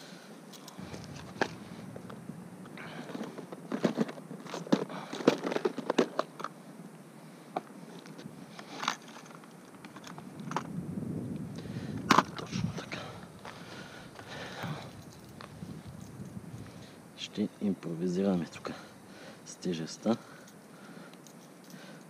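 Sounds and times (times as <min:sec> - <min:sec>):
lures shifting inside box: 0:02.9 - 0:06.6
plastic boxes clattering and clicking: 0:03.1 - 0:06.6.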